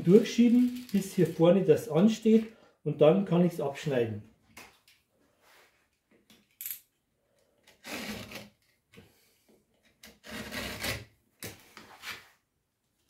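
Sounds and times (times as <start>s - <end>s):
rough rasping scrapes: 7.8s - 8.4s, 10.2s - 11.1s.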